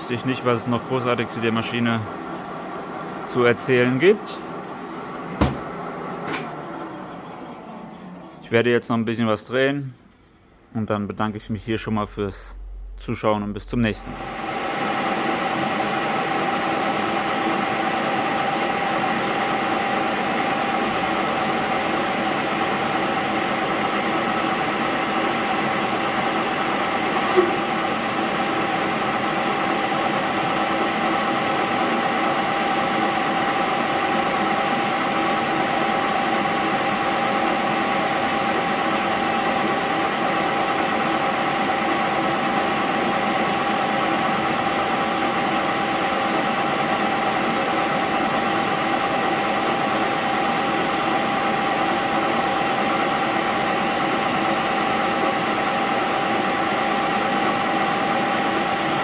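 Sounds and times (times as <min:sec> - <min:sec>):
metal lathe whining: 0:14.0 - 0:59.0.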